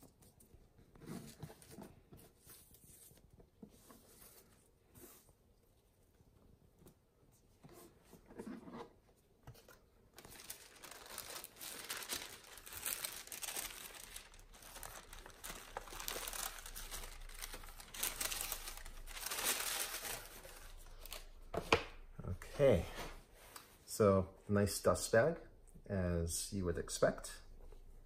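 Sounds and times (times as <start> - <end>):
tissue paper rustling: 10.2 - 21.3.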